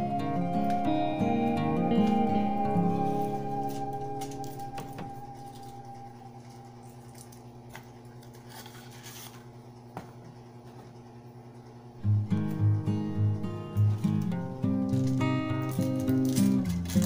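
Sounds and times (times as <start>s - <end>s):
foil and packaging rustling: 3.0s - 9.8s, 13.9s - 17.0s.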